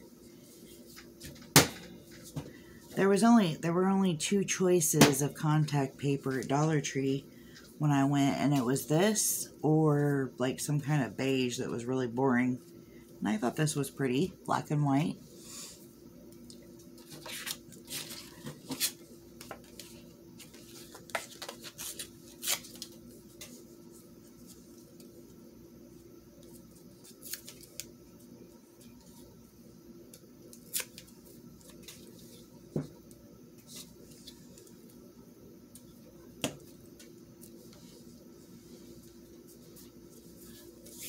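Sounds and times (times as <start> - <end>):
faint steady hum: 0.0 - 41.0.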